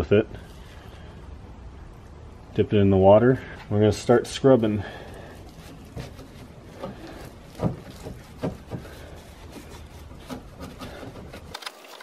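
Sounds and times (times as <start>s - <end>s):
sponge scrubbing metal: 5.4s - 11.5s.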